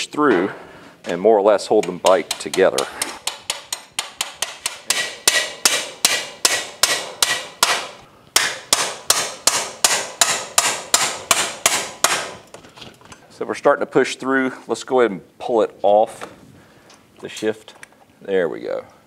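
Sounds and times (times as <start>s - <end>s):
hammer tapping steel rod: 1.7s - 12.3s.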